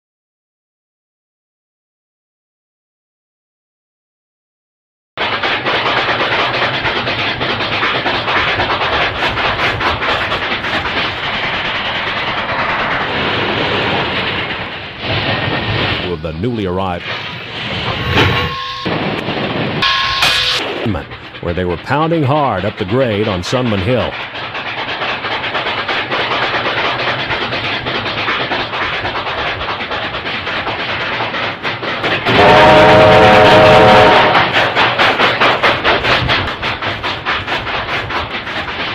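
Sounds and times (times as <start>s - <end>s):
steam locomotive exhaust chuffs: 5.2s - 38.9s
wheels clattering on rails: 5.2s - 38.9s
steam whistle chord: 18.4s - 19.0s, 19.8s - 20.8s, 32.3s - 34.5s.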